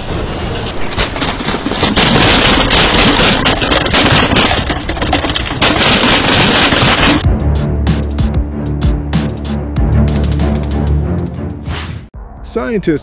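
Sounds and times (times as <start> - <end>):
steam eruption roar: 0.0 - 7.2
crackling and popping: 0.6 - 7.3.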